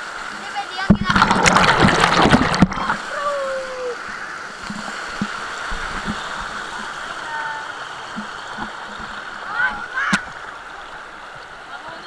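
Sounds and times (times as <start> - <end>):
running water rushing: 0.0 - 12.0
soft splashes: 0.9 - 3.3.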